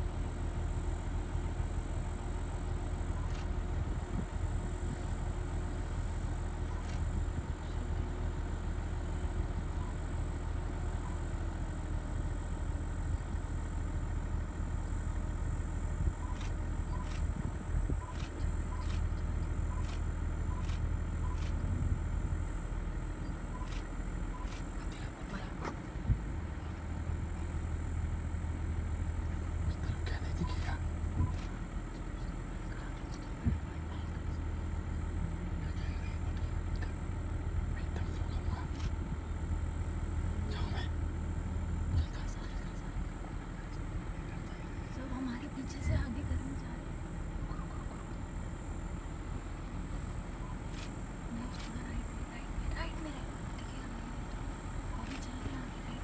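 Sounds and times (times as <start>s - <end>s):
vehicle engine idling: 0.0s - 56.0s.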